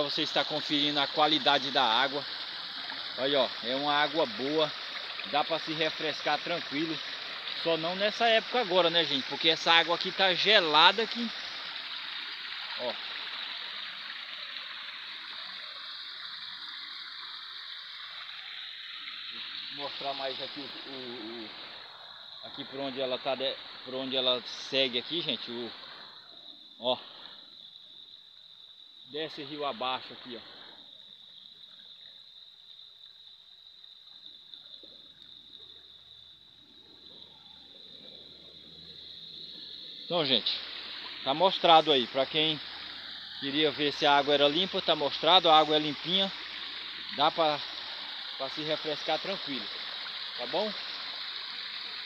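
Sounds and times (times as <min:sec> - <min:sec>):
waterfall splashing over rocks: 0:00.0 - 0:25.7, 0:39.3 - 0:52.0.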